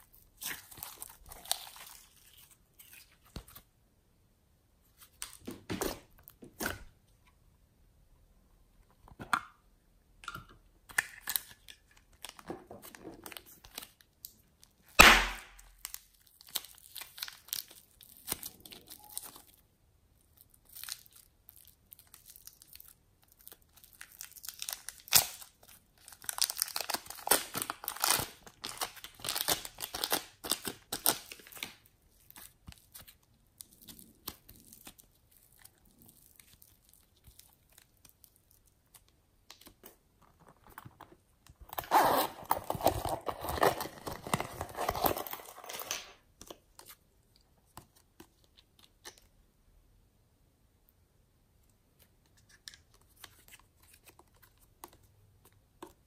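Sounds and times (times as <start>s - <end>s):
plastic bag crinkling and tearing: 0.0s - 3.3s, 11.2s - 19.6s, 20.4s - 38.7s, 41.6s - 46.0s.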